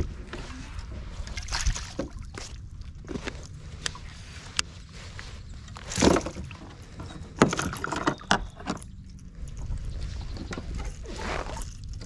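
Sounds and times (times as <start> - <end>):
soft water noise: 0.0 - 12.0.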